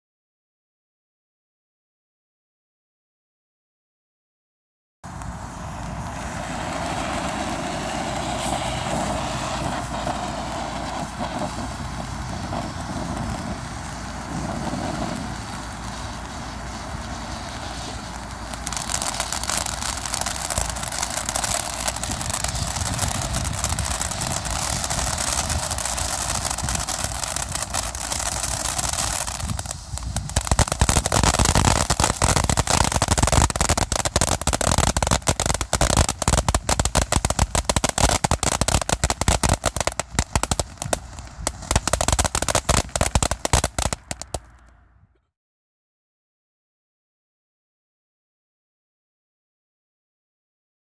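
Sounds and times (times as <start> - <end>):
firework fountain hissing: 5.0 - 44.8
firework crackling: 5.1 - 44.8.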